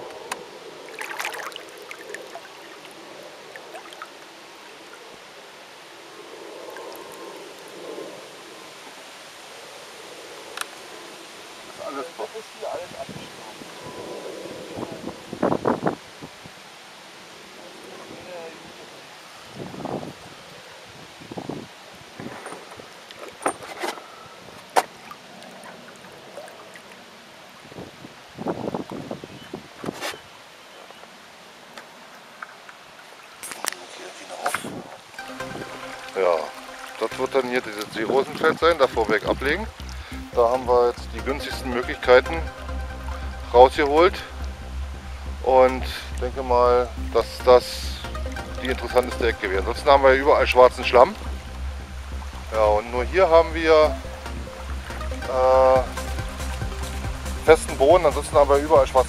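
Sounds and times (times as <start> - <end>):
water sloshing: 0.0 - 5.2, 22.2 - 27.8, 32.1 - 58.5
water splashing and trickling: 0.0 - 16.7, 17.3 - 30.0, 31.9 - 59.0
water dripping: 0.3 - 5.1, 35.0 - 59.0.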